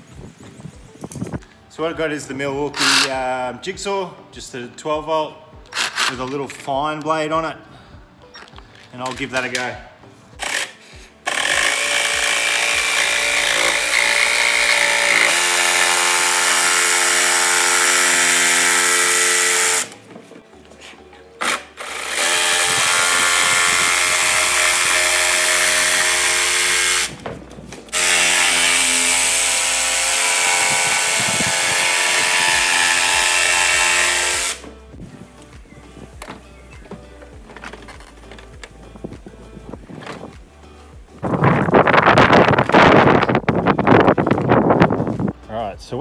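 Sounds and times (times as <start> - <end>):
jigsaw cutting plastic: 10.4 - 20.0, 21.4 - 27.2, 27.9 - 34.6.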